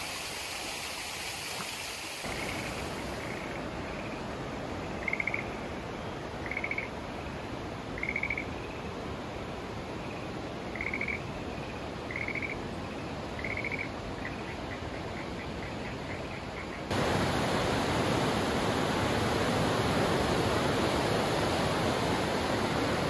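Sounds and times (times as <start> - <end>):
river water rushing: 0.0 - 6.4, 16.9 - 23.0.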